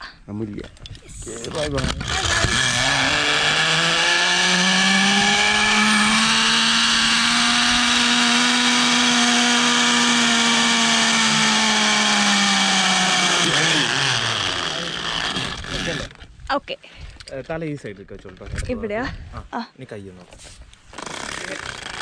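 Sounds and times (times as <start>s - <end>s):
zipline pulleys whining on cable: 1.4s - 16.2s, 20.9s - 22.0s.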